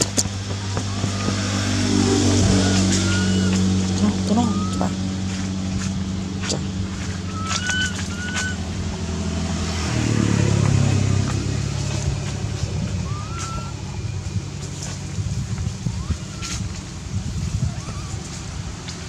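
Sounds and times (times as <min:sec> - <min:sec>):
vehicle engine running: 0:00.0 - 0:19.0
short rising squeaks: 0:00.6 - 0:09.9, 0:11.8 - 0:14.1.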